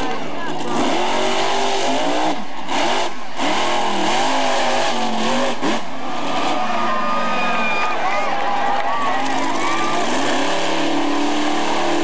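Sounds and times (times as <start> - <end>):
monster truck engine revving: 0.0 - 12.0.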